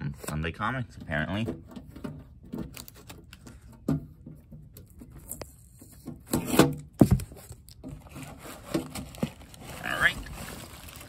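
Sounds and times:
packing paper and bubble-wrap rustling: 5.2s - 11.0s.

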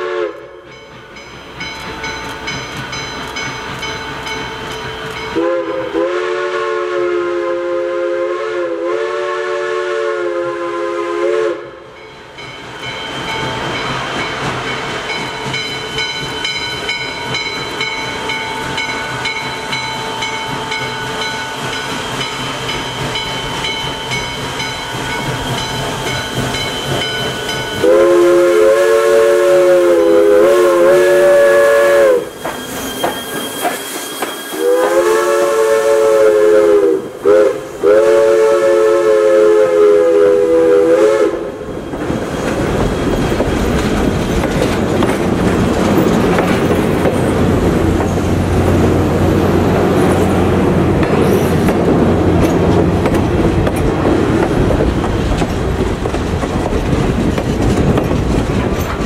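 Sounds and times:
steam whistle: 0.0s - 0.6s, 5.3s - 12.0s, 25.4s - 41.8s
train rumble: 0.0s - 59.0s
wheel clatter: 42.1s - 48.4s, 52.4s - 59.0s.

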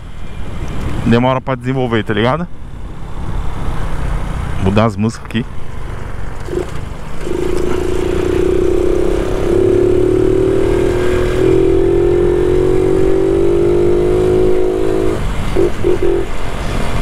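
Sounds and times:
motorcycle engine running: 5.9s - 17.0s.

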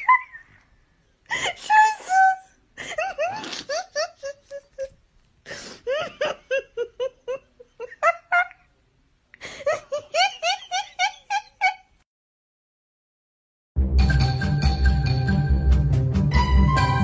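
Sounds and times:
person giggling high-pitched: 0.0s - 0.6s, 1.3s - 5.0s, 5.8s - 8.7s, 9.4s - 12.0s.

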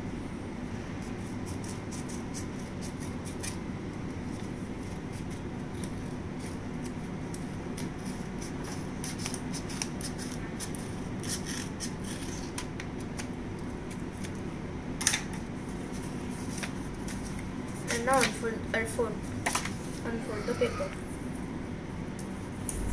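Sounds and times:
scissors snipping paper: 1.5s - 3.6s, 5.1s - 13.3s.

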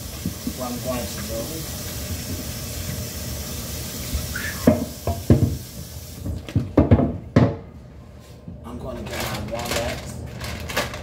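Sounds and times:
tap water running into sink: 0.0s - 6.7s
board knocking against sink: 4.6s - 5.6s, 6.2s - 7.6s.

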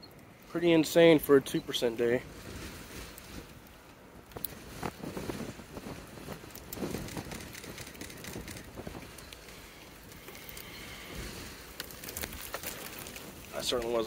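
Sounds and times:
light crackles: 0.0s - 14.0s
gusty wind on microphone: 4.2s - 9.3s.

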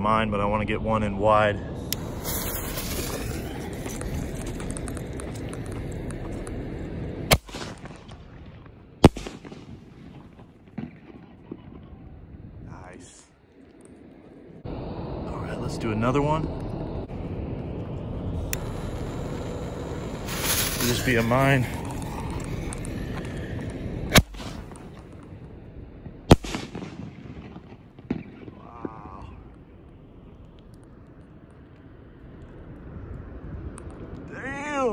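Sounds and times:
firework shell bursting: 1.8s - 6.4s, 18.4s - 23.4s, 24.1s - 25.2s
faint firework crackles: 1.8s - 12.2s, 17.1s - 25.6s, 26.2s - 34.2s
firework launch bang: 2.0s - 4.0s, 7.3s - 8.3s, 9.0s - 11.3s, 20.1s - 21.8s, 24.1s - 24.9s, 26.3s - 28.6s.

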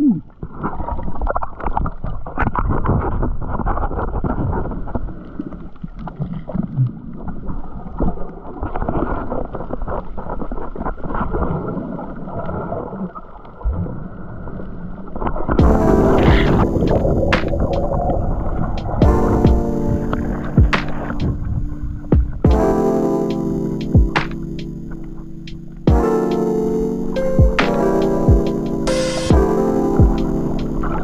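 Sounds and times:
muffled underwater rush: 0.0s - 31.0s
small underwater crackles and clicks: 0.3s - 15.6s.

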